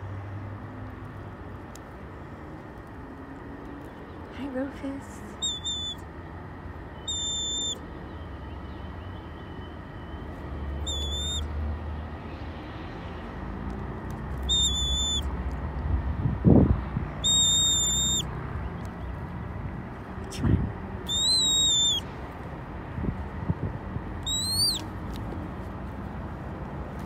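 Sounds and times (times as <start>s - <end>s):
hawk whistled calls: 5.3s - 6.1s, 6.9s - 8.3s, 10.8s - 11.5s, 14.4s - 15.3s, 17.2s - 18.3s, 21.0s - 22.1s, 24.2s - 24.9s.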